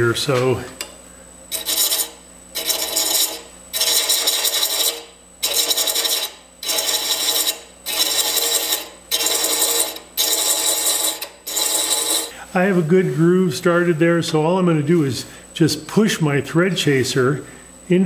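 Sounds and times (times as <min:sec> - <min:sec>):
faint lathe hum: 0:00.0 - 0:18.0
thread chaser rasping on wood: 0:01.5 - 0:12.3.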